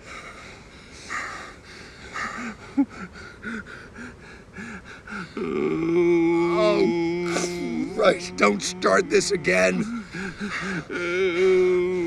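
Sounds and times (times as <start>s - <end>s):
man laughing: 2.2s - 3.1s, 6.1s - 12.0s.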